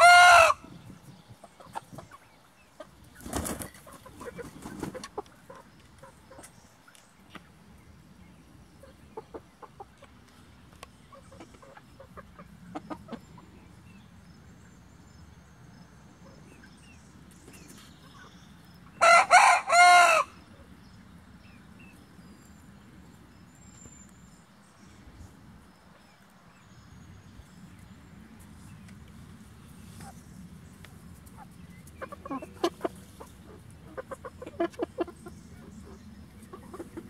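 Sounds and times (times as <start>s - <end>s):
rooster crowing: 0.0s - 0.6s, 19.0s - 20.4s
soft chicken clucks: 0.0s - 14.6s, 27.7s - 37.0s.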